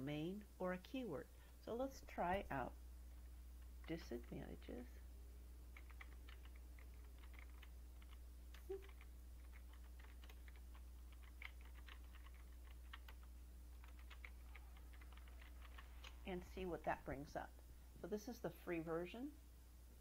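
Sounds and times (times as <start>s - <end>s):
typing on computer keyboard: 5.7s - 16.2s.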